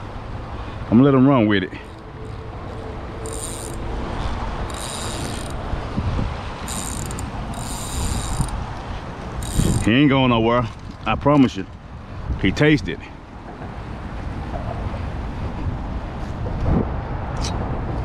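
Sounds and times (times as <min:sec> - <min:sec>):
fishing reel clicking: 0:01.8 - 0:05.6, 0:06.6 - 0:08.7, 0:09.4 - 0:10.0
wind on microphone: 0:02.6 - 0:10.1, 0:15.4 - 0:18.0.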